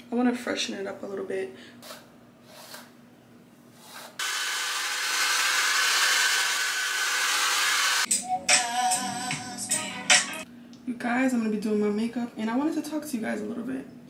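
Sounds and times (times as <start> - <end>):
hair dryer blowing: 4.2 - 8.1.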